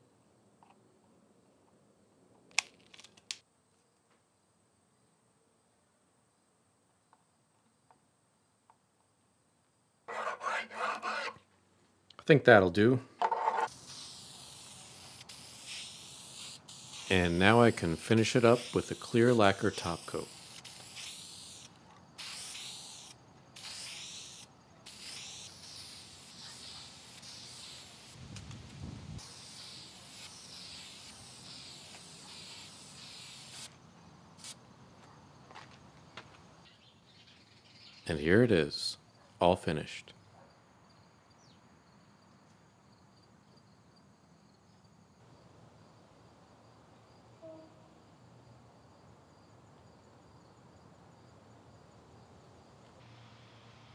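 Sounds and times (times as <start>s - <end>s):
hissing spray: 13.7s - 33.7s.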